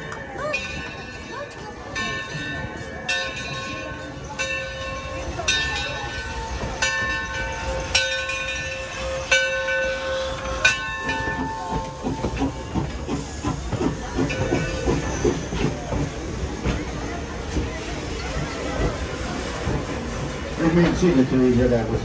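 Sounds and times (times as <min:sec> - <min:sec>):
locomotive bell ringing: 0:00.0 - 0:16.4
train wheels clattering on rails: 0:00.0 - 0:22.0.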